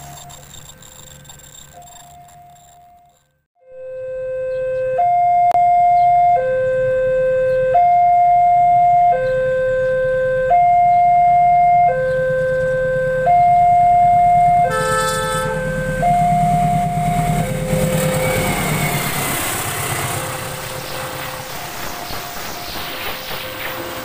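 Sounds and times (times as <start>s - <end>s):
diesel locomotive rumble: 12.0s - 24.0s
train horn chord: 14.5s - 21.7s
train wheels rushing: 14.8s - 24.0s.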